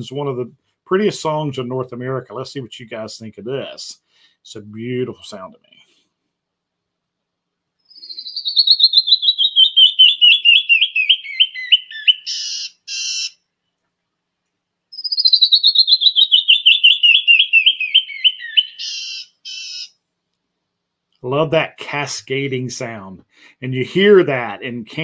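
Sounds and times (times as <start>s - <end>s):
bird song whistled notes: 7.9s - 13.4s, 14.9s - 20.0s.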